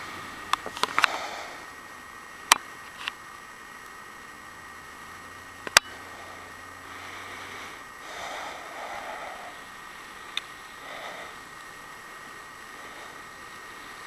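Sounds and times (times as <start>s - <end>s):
wind hiss on microphone: 6.0s - 14.0s.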